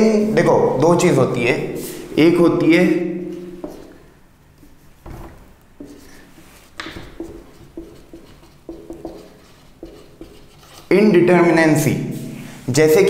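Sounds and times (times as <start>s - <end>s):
marker pen writing on whiteboard: 3.2s - 4.9s, 5.8s - 11.1s.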